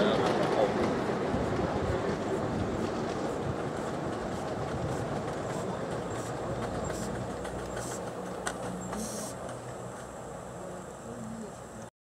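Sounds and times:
model train wheels rumbling: 0.0s - 11.9s
short hiss: 5.6s - 8.1s, 9.0s - 9.5s.

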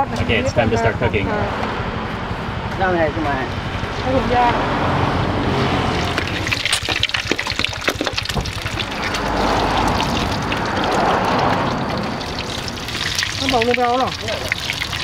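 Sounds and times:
egg frying in hot oil: 5.9s - 15.0s.

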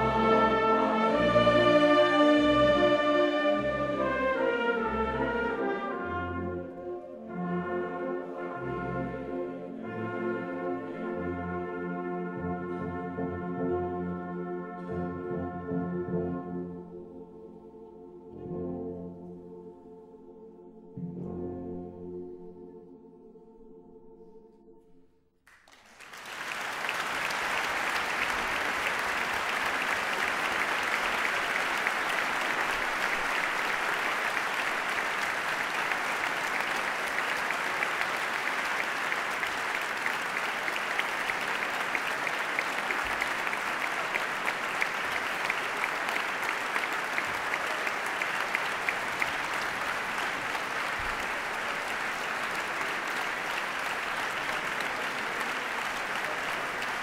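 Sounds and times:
audience applause: 25.5s - 57.0s.

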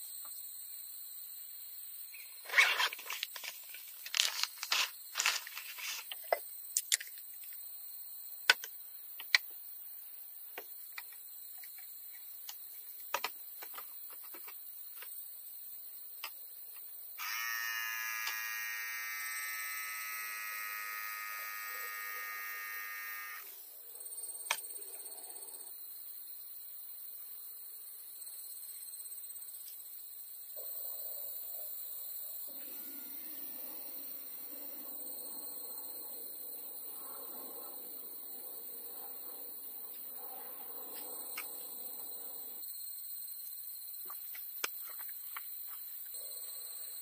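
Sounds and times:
bag and gear rustling: 2.5s - 6.1s
beer dispenser buzzing: 17.2s - 23.5s
small clicks: 17.2s - 23.5s.

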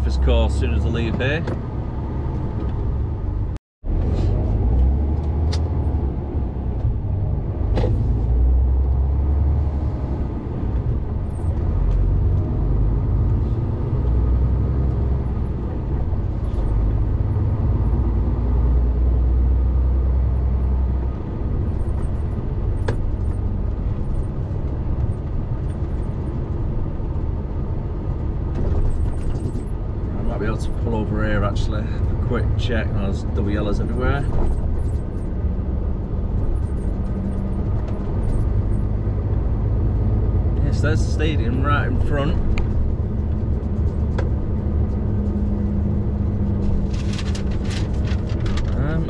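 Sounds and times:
truck diesel engine rumble: 0.0s - 49.0s.

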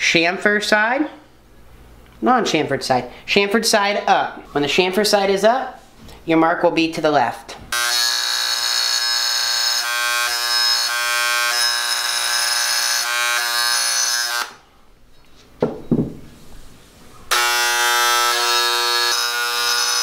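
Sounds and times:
engraving pen buzzing: 7.7s - 14.6s, 17.3s - 20.0s.

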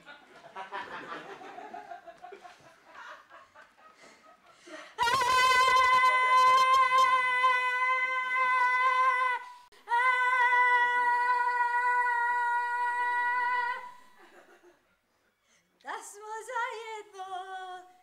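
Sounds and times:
woman singing long high note: 5.0s - 14.0s.

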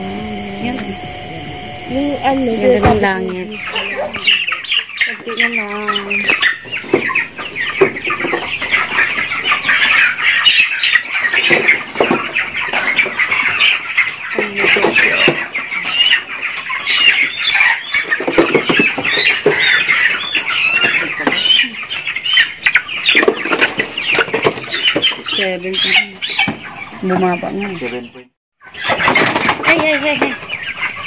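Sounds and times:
chickens squawking: 0.0s - 31.0s
wings flapping: 28.8s - 30.1s.

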